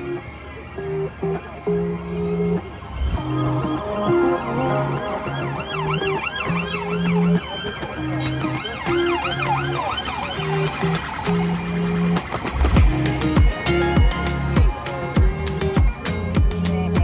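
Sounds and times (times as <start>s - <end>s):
background music with held bass: 0.0s - 17.0s
emergency vehicle siren yelping: 2.1s - 16.0s.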